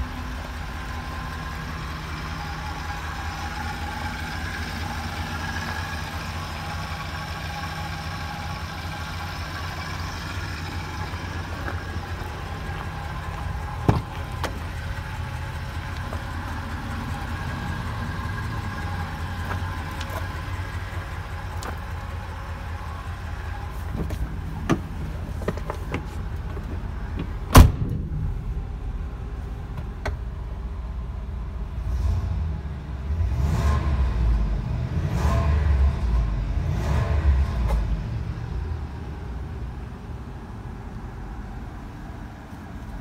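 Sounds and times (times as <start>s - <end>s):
van engine idling: 0.0s - 43.0s
loud thud: 13.8s - 14.6s, 27.2s - 28.7s.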